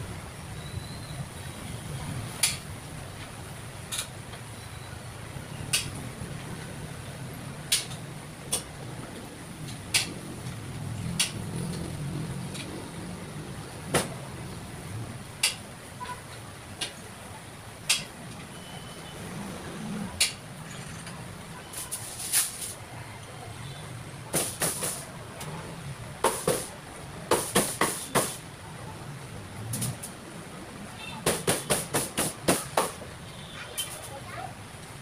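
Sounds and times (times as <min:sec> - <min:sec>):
charcoal grill pops and crackles: 0:07.7 - 0:08.7, 0:09.6 - 0:10.4, 0:11.1 - 0:11.8, 0:29.7 - 0:30.2.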